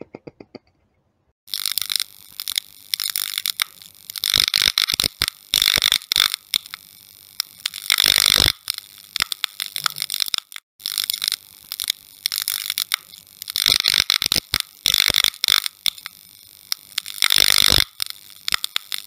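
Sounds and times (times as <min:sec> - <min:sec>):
neon sign crackling and buzzing: 0:01.5 - 0:19.0.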